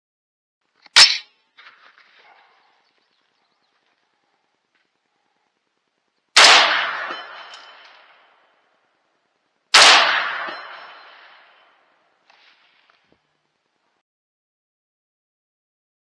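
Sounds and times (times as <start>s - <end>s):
rifle shots echoing: 6.4s - 8.4s, 9.7s - 11.7s.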